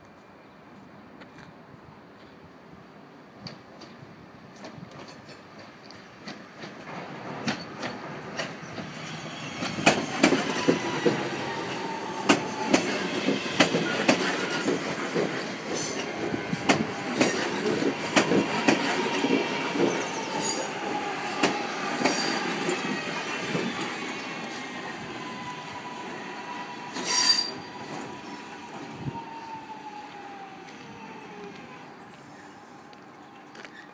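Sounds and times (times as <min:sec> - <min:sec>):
train wheels clunking over rail joints: 0:03.4 - 0:23.9
electric train whine: 0:06.8 - 0:33.8
wheel squeals: 0:17.0 - 0:28.5, 0:33.5 - 0:33.9.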